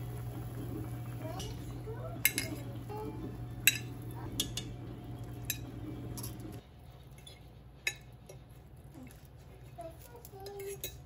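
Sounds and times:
steady low hum: 0.0 - 9.3
metal cutlery clinking on dishes: 10.2 - 11.0.

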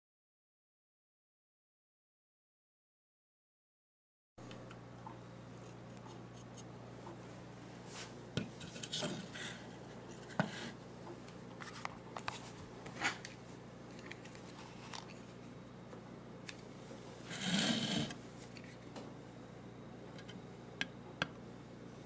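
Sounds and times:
steady low hum: 4.4 - 22.0.

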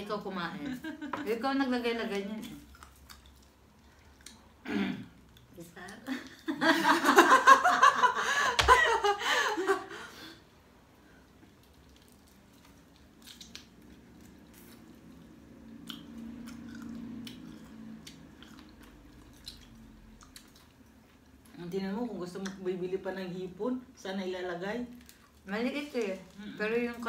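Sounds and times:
quiet chewing: 2.2 - 6.4, 11.0 - 21.6, 24.9 - 27.0
women laughing loudly: 6.5 - 10.1.

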